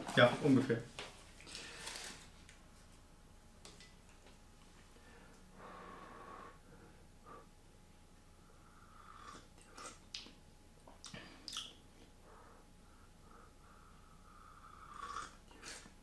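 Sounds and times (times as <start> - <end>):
soft breaths: 4.8 - 7.6, 11.1 - 15.0
person slurping hot tea: 14.8 - 15.9.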